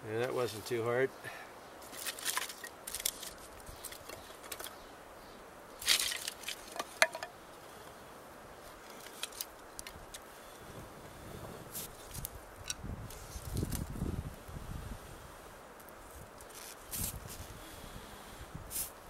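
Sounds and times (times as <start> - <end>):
kindling rustling and crackling: 1.8 - 4.8, 5.8 - 7.3, 8.6 - 10.3.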